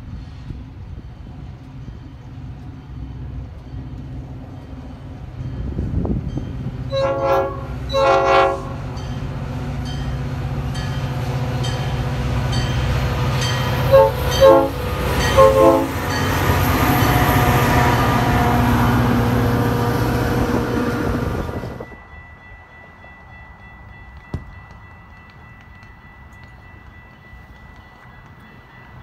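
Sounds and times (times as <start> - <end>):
train rushing past: 0.0 - 29.0
locomotive horn blasts: 6.9 - 8.9, 13.6 - 21.8
faint bell ringing: 21.8 - 29.0.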